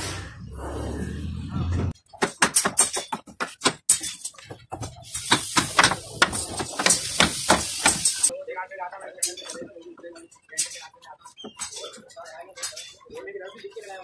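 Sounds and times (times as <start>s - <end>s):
hiss: 5.0s - 8.3s.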